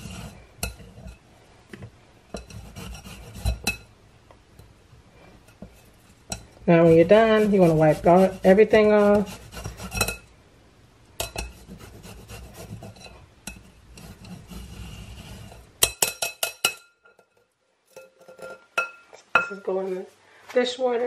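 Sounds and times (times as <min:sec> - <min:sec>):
spatula scraping a grater: 0:00.0 - 0:01.2, 0:02.3 - 0:03.8, 0:05.5 - 0:10.2, 0:11.2 - 0:16.0.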